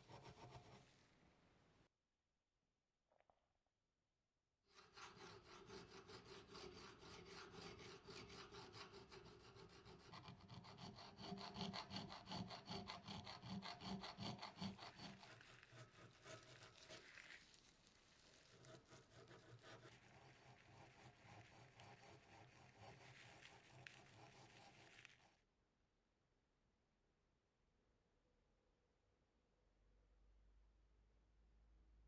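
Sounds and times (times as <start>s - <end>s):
file rasping on brass: 0.0s - 0.9s, 4.7s - 17.3s, 18.5s - 25.2s
soft rubbing: 15.0s - 25.4s.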